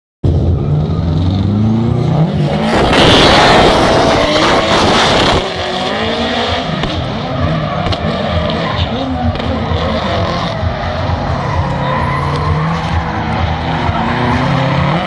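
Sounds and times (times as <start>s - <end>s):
car engines revving: 0.2s - 15.0s
tyre screech: 6.4s - 15.0s.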